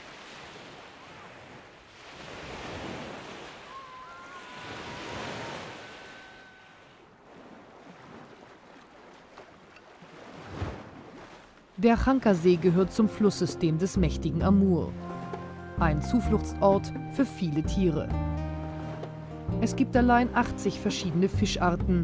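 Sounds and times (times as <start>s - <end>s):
waves washing onto sandy beach: 0.0s - 11.6s.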